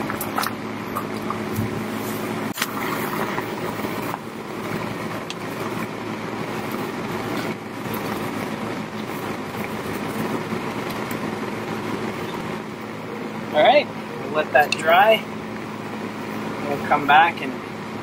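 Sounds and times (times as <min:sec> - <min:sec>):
constant rushing noise: 0:00.0 - 0:18.0
steady mechanical hum: 0:00.0 - 0:18.0.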